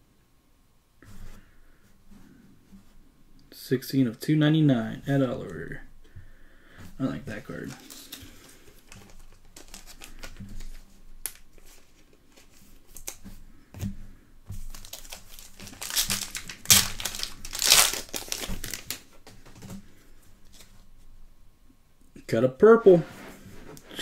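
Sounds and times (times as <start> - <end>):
card pack wrapper crinkling and tearing: 7.5 - 13.2, 14.7 - 19.1.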